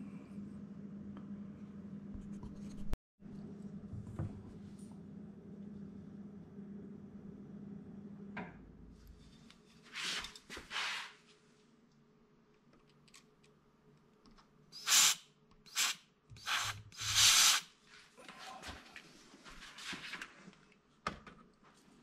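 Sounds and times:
compressed air hissing bursts: 14.8 - 17.7.

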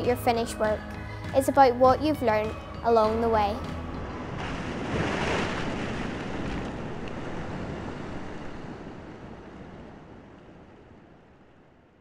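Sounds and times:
surf washing over rocks: 4.1 - 11.5.

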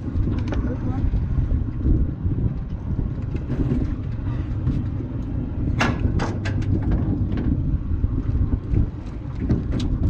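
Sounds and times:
wind rumbling on microphone: 0.0 - 10.0.

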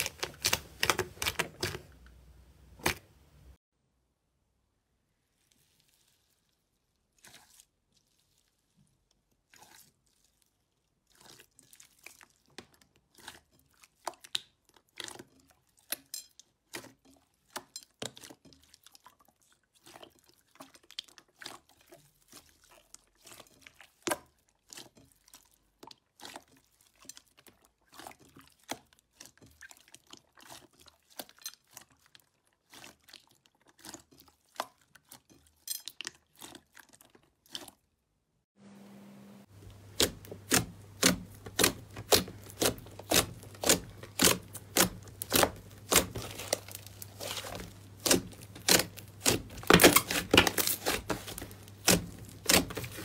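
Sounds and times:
slime crunching and popping: 0.0 - 2.0, 9.5 - 16.1, 39.6 - 53.0.

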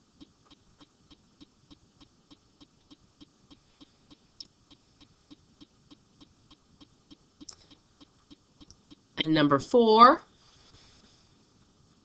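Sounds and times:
soft regular ticking: 0.0 - 9.2.

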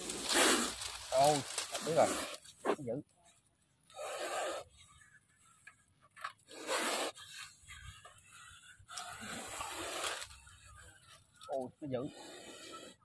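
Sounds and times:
snake hissing: 0.0 - 2.6, 3.9 - 4.8, 6.5 - 11.0, 12.1 - 13.0.

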